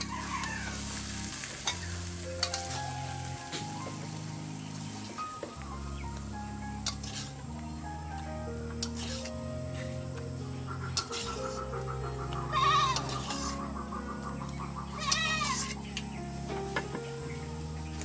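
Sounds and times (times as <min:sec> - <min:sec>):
background music with held notes: 0:00.0 - 0:18.0
animal bleating: 0:12.5 - 0:13.5, 0:15.0 - 0:15.7.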